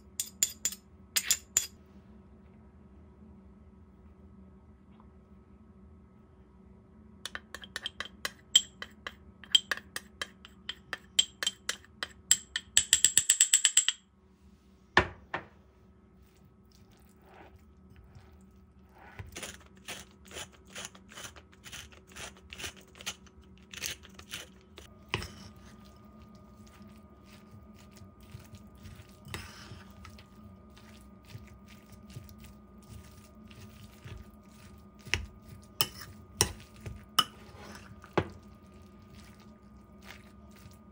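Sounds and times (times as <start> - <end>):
metal spoon tapping ceramic cup: 7.3 - 14.0.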